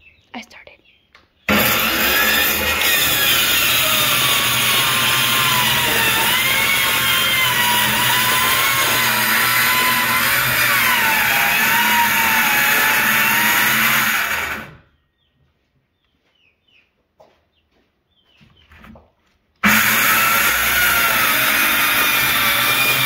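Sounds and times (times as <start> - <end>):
circular saw motor whine: 1.5 - 14.8
saw blade cutting wood: 1.5 - 14.8, 19.6 - 23.0.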